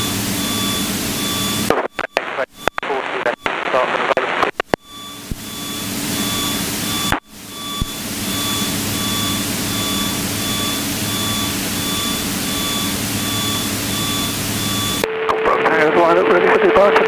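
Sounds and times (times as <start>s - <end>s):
aircraft piston engine drone: 0.0s - 1.7s, 4.8s - 15.0s
short electronic beeps: 0.0s - 15.1s.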